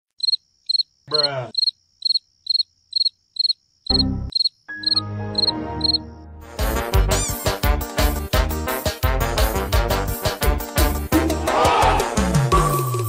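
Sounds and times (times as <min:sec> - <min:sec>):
cricket chirping: 0:00.2 - 0:06.0.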